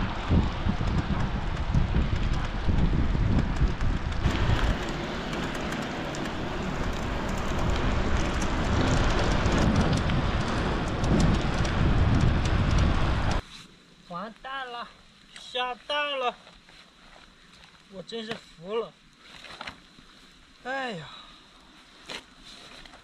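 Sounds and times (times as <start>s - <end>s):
wind rumbling on microphone: 0.0s - 13.4s
bicycle tyres on wet asphalt: 0.0s - 23.0s
heavy rain: 4.1s - 13.4s.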